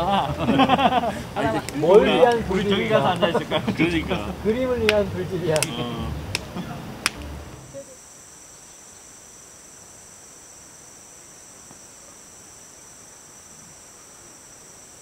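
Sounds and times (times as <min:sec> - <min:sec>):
high-pitched insect chorus: 0:00.0 - 0:15.0
sharp clicks: 0:05.6 - 0:07.3.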